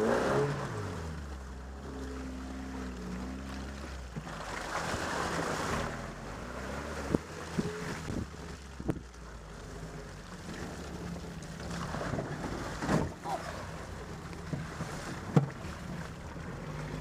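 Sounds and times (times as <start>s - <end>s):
jeep engine running: 0.0s - 17.0s
vehicle knocks and rattles: 14.1s - 16.2s.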